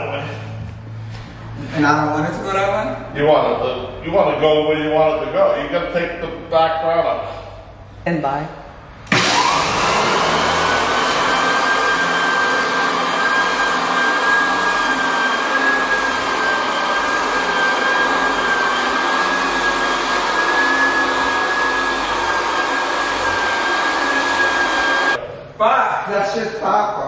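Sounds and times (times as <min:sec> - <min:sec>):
floor sander motor whine: 0:09.1 - 0:25.2.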